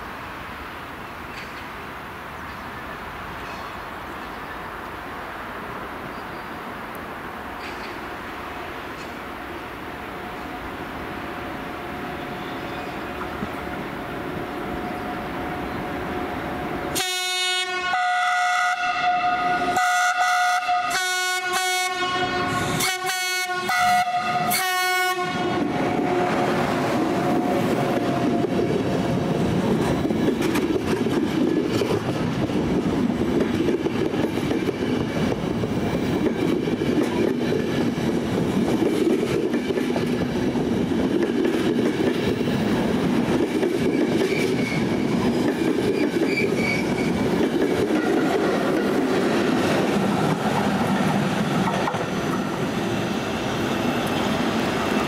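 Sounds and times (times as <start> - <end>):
train wheels rushing on rails: 0.0 - 18.0, 18.8 - 55.0
train two-tone horn blasts: 16.9 - 28.7.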